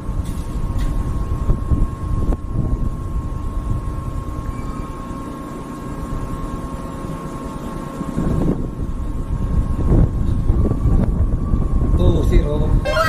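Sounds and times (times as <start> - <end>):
wind buffeting microphone: 0.0 - 4.4, 8.1 - 12.9.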